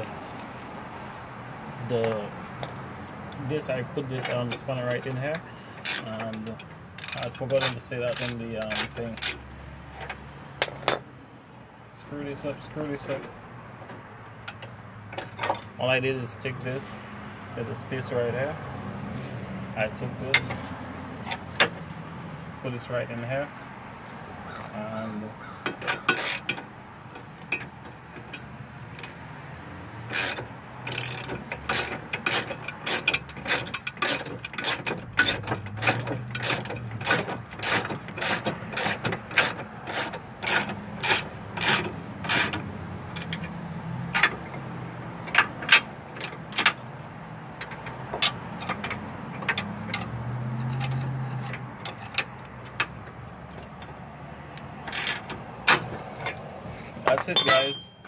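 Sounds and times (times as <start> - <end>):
ratchet wrench clicking: 5.1 - 9.5, 25.9 - 26.6, 28.3 - 29.2, 30.1 - 44.4, 54.5 - 56.4.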